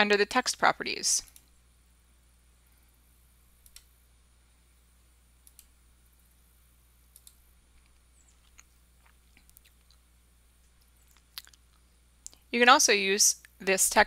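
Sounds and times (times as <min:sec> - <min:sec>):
low steady hum: 0:00.0 - 0:14.0
computer mouse clicks: 0:03.6 - 0:03.9, 0:05.4 - 0:06.4, 0:07.1 - 0:07.4.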